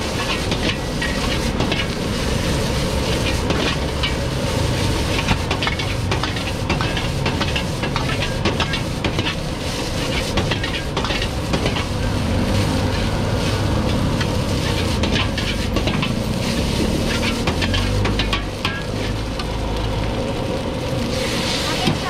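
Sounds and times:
metal ladle scraping wok: 0.0s - 19.5s, 21.1s - 22.0s
gas burner rushing: 0.0s - 22.0s
rice sizzling in wok: 0.0s - 22.0s.

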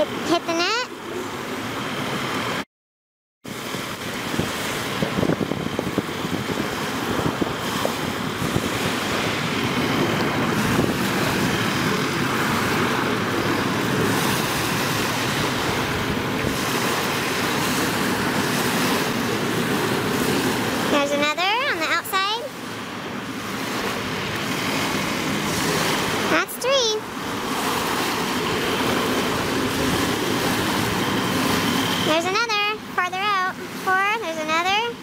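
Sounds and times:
wind on microphone: 3.5s - 21.0s, 27.0s - 32.2s
sea waves on pebble shore: 6.0s - 33.0s.

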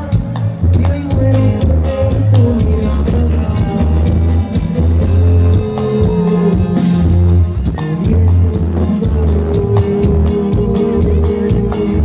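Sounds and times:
live band music: 0.0s - 12.0s.

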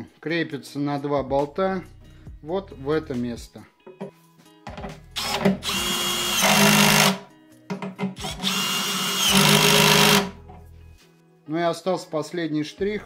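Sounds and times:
cordless drill driving bolts: 5.2s - 7.2s, 8.2s - 10.4s.

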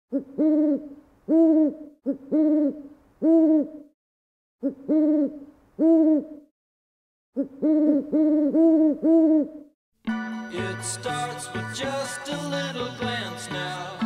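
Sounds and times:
owl hooting: 0.1s - 3.9s, 4.6s - 6.5s, 7.4s - 9.7s.

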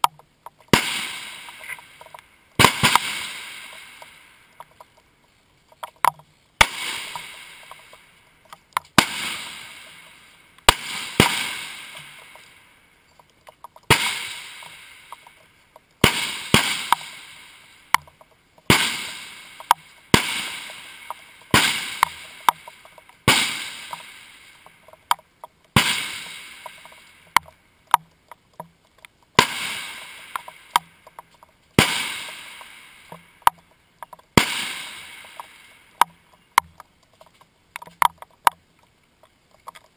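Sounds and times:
rifle shots with echo: 0.7s - 4.2s, 6.6s - 8.0s, 9.0s - 12.6s, 13.9s - 15.3s, 16.0s - 17.7s, 18.7s - 24.7s, 25.8s - 27.3s, 29.4s - 30.8s, 31.8s - 33.2s, 34.4s - 35.8s.

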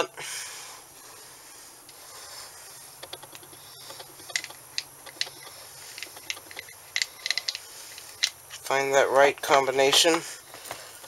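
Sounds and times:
metal gears clicking and clinking: 4.2s - 8.4s.

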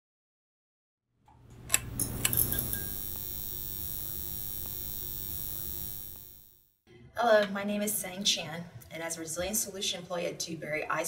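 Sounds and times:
held ringing tone: 2.0s - 6.6s.

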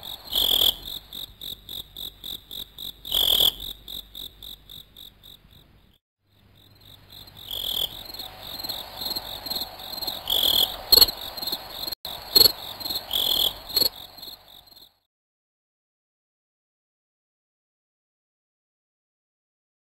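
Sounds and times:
crickets chirping: 0.0s - 15.1s.

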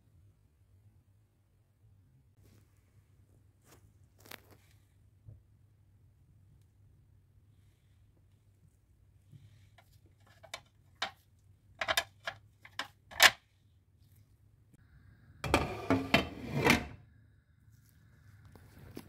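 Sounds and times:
cookware clicks and taps: 11.8s - 13.4s.

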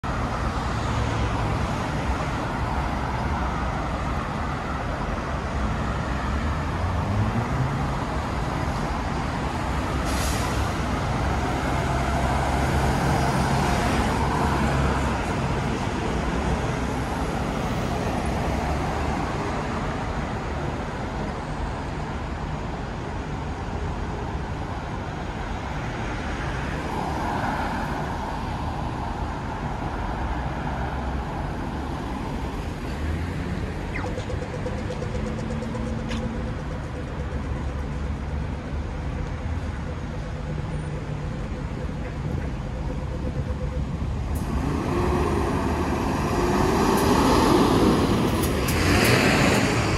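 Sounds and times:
cars and truck passing: 0.0s - 49.9s
engine rising in pitch: 42.7s - 49.9s.

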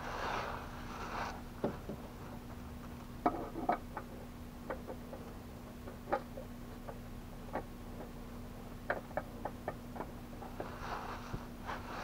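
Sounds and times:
faint steady hum: 0.0s - 12.0s
hand rustle: 10.5s - 12.0s.

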